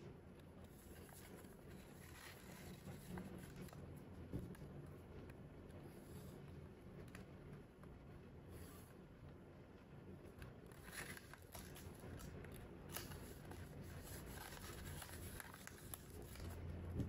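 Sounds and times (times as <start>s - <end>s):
soft paper clicks and crinkles: 0.0s - 17.0s
paper rustling and creasing: 0.6s - 4.7s, 10.3s - 17.0s.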